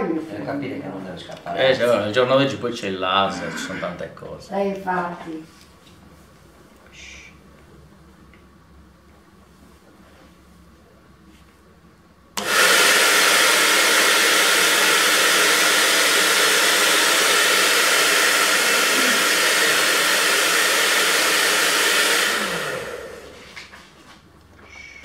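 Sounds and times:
hair dryer blowing: 0:12.4 - 0:23.8.

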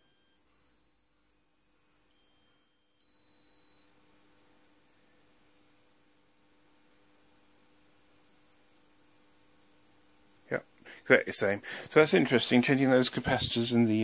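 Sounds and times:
sine test tones stepping upward: 0:00.0 - 0:09.7
faint steady hum: 0:00.0 - 0:14.0.

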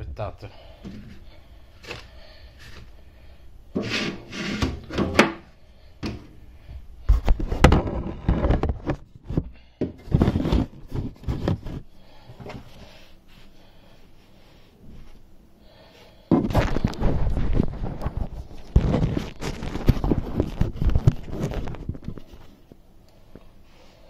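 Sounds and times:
heavy thumps: 0:16.3 - 0:21.2.

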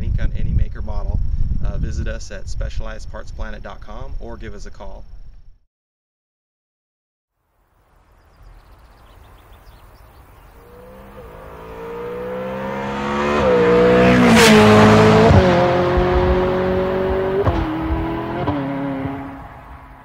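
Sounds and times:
car engine accelerating: 0:10.1 - 0:20.0.

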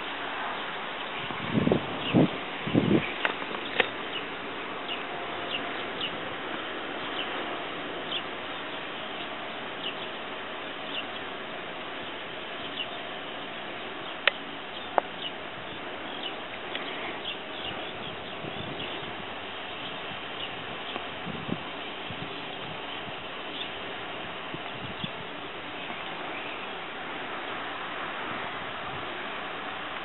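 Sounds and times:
small birds chirping: 0:00.0 - 0:24.0, 0:24.6 - 0:27.8
steady hiss: 0:00.0 - 0:30.0.

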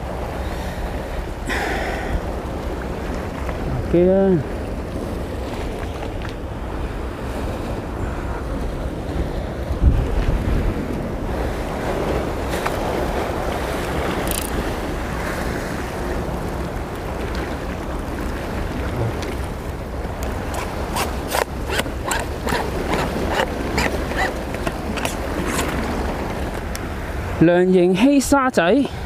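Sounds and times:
wind buffeting microphone: 0:00.0 - 0:27.4
waves washing over rocks: 0:09.2 - 0:28.9.

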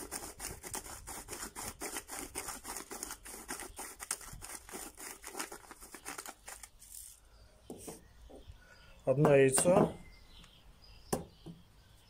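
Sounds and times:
pepper mill grinding: 0:00.0 - 0:07.2.

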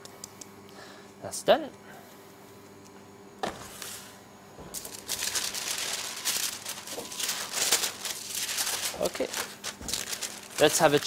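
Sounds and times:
paper rustling and crinkling: 0:04.7 - 0:11.0.

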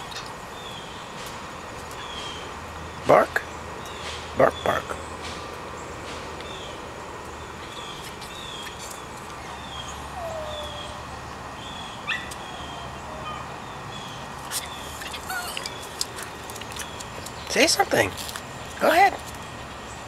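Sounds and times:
bird chirping: 0:00.0 - 0:01.2, 0:01.9 - 0:20.0
distant dog howling: 0:09.5 - 0:11.2, 0:12.0 - 0:13.6.

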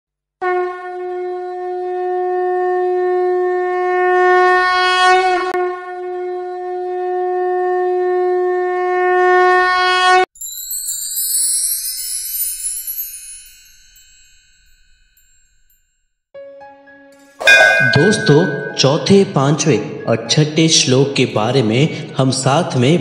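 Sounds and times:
conch shell blown: 0:00.4 - 0:10.2, 0:17.4 - 0:19.0.

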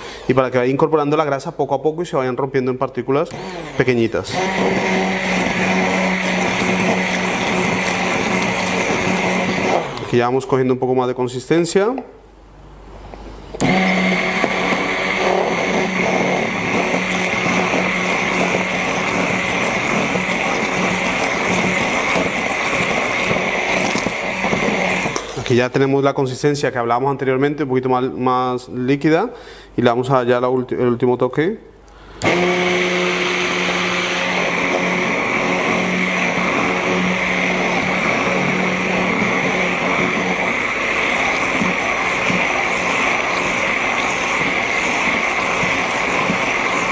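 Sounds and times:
stick blender running: 0:03.3 - 0:10.2, 0:13.6 - 0:25.5, 0:32.2 - 0:46.9.

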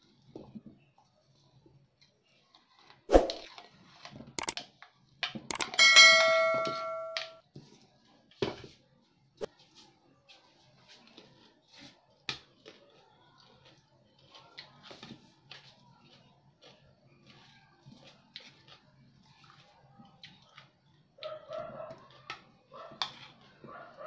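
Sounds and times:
ceramic dish ringing ding: 0:05.7 - 0:07.4.

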